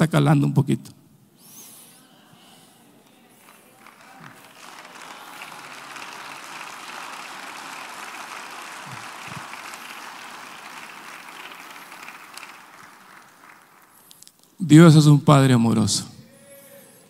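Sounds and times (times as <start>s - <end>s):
congregation applauding: 3.4s - 14.5s.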